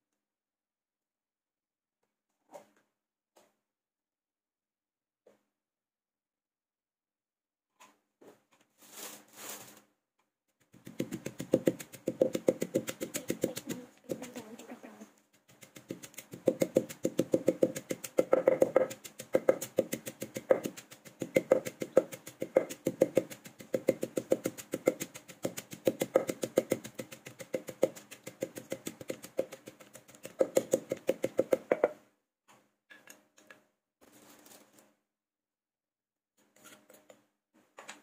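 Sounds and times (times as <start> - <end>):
wooden pestle pounding in mortar: 10.7 - 14.4, 15.5 - 32.0.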